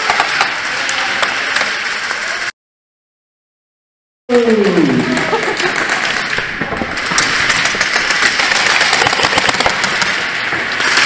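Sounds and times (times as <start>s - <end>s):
airsoft guns firing in bursts: 7.0s - 10.2s.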